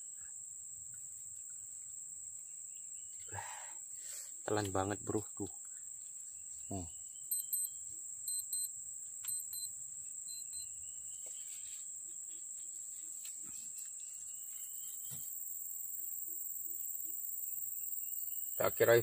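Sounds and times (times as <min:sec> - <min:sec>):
insects droning: 0:00.0 - 0:19.0
short paired chirps: 0:07.3 - 0:07.7, 0:08.3 - 0:08.7, 0:09.3 - 0:09.7.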